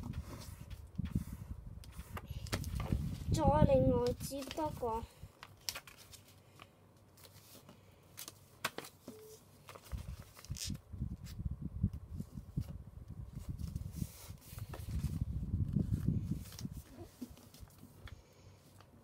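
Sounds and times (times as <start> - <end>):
paper being folded: 4.0 - 9.0, 9.6 - 11.4, 13.3 - 18.1.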